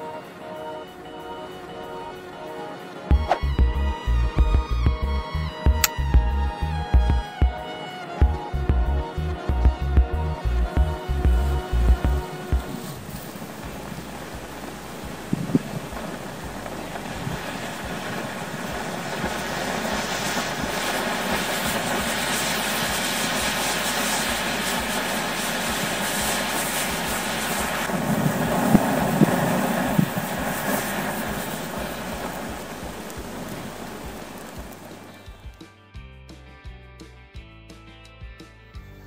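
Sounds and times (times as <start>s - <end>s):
fire crackling and popping: 0.0s - 35.7s
flame rushing: 10.1s - 35.4s.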